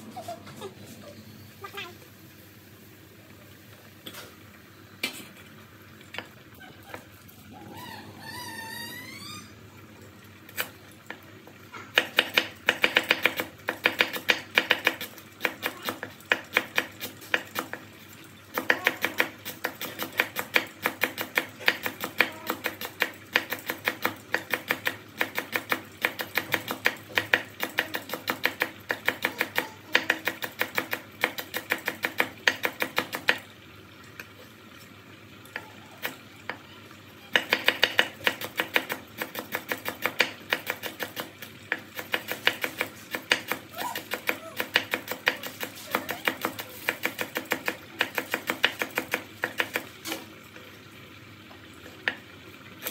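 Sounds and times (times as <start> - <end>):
knife chopping on wooden board: 37.4 - 50.2.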